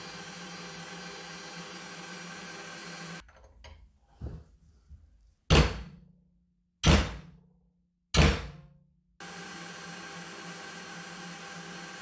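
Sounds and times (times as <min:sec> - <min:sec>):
hammer striking metal: 0:06.8 - 0:07.4, 0:08.1 - 0:08.7.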